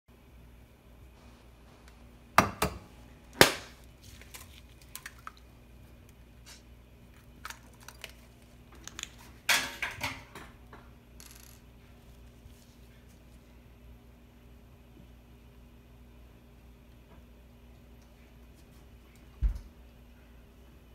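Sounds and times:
eggshell cracking: 3.4 - 6.2, 7.1 - 9.4
eggshell clattering: 7.2 - 10.5.

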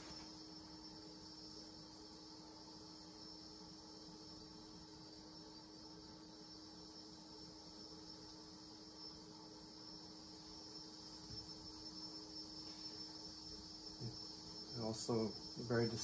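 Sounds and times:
high-pitched electrical whine: 0.0 - 16.0.

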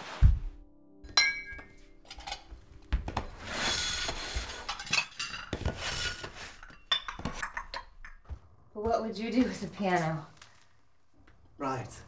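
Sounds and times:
china teacups clinking: 1.2 - 2.4
cups scraping on tiled floor: 3.2 - 7.9.

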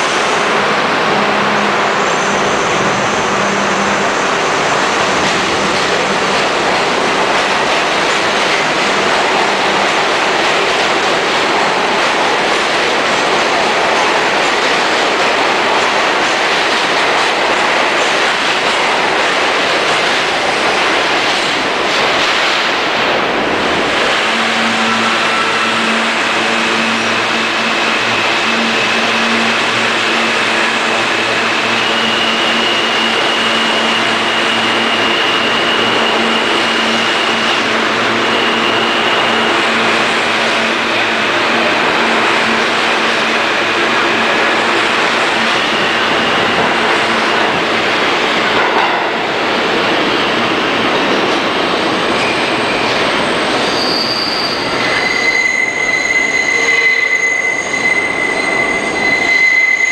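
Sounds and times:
subway train running on rails: 0.0 - 59.9
train humming tones: 0.0 - 59.9.

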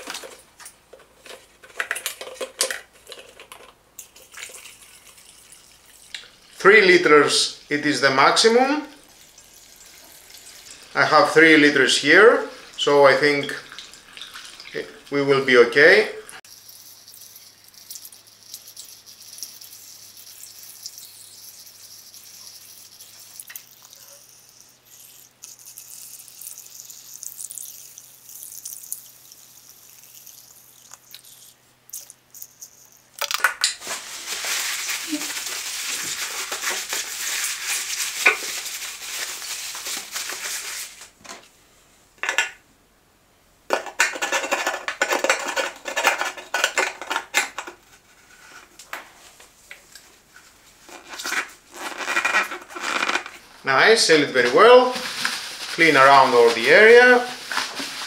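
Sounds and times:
gasoline pouring through funnel: 4.0 - 15.4, 16.4 - 32.9.

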